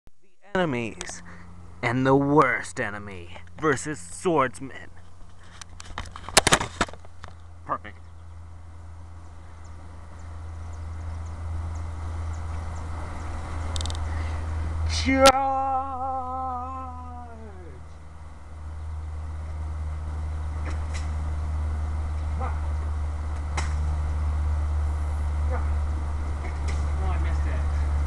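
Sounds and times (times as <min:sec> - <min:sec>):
steady low rumble: 0:00.1 - 0:28.0
person holding wavering note: 0:14.5 - 0:18.2.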